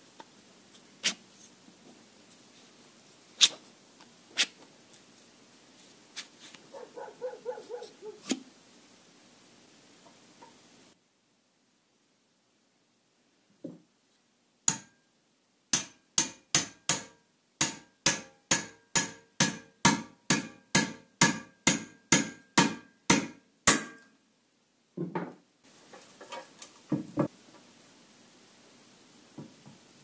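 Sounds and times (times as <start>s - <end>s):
hammer striking metal: 14.7s - 15.0s, 15.7s - 24.2s.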